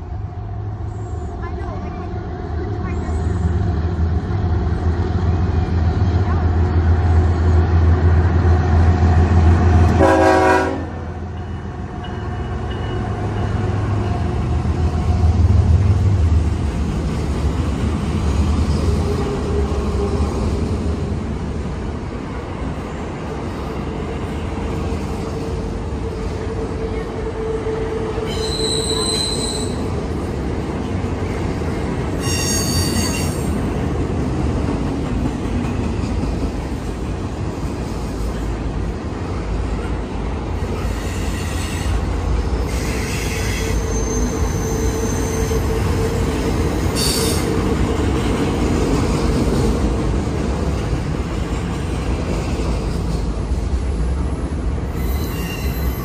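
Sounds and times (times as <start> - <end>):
locomotive horn: 9.9 - 11.1
wheel flanges squealing: 28.2 - 29.9, 42.7 - 46.0, 54.9 - 56.0.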